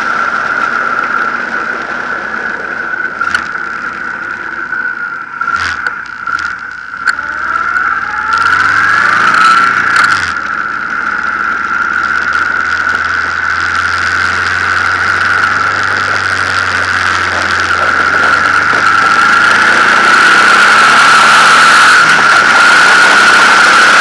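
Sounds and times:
motorcycle engine accelerating: 0.0 - 24.0.

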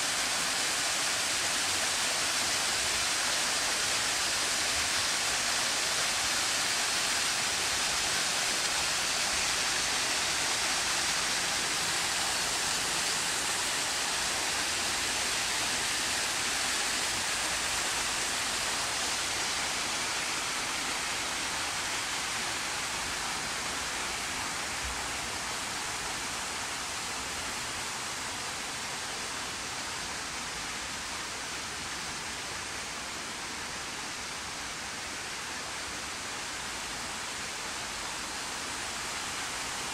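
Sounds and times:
waterfall pouring over rocks: 0.0 - 39.9.

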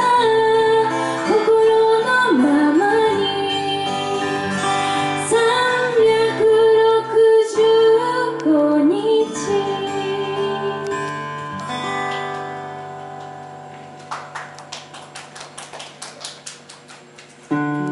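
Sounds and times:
woman singing: 0.0 - 11.2
acoustic guitar: 0.0 - 17.9.

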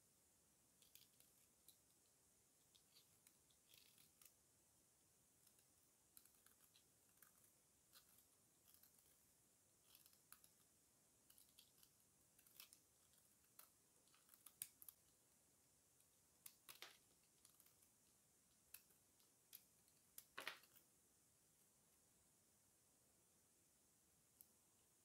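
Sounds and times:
knife scraping soap: 5.4 - 9.2, 9.8 - 15.0.

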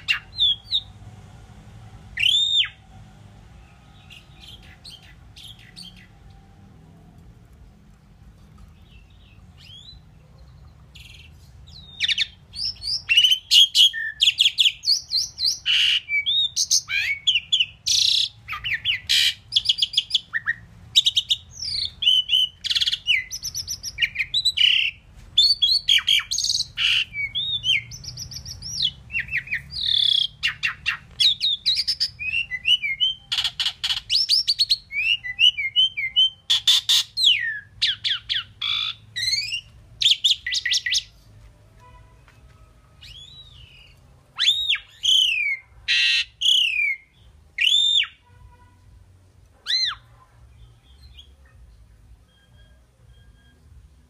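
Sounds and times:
bird singing whistles and chirps: 2.2 - 2.8, 8.9 - 10.0, 11.0 - 41.2, 43.0 - 48.2, 49.6 - 51.6.

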